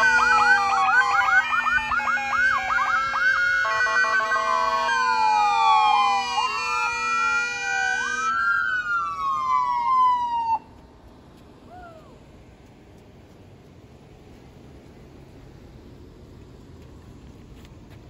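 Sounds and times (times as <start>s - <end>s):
police sirens wailing: 0.0s - 10.7s.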